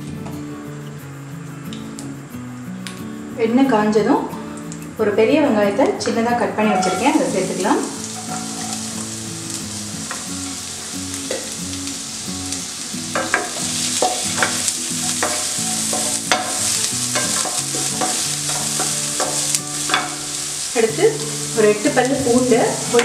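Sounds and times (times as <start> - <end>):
onion sizzling in oil: 4.4 - 23.0
wooden spoon scraping a pan: 6.8 - 9.0, 13.2 - 20.2.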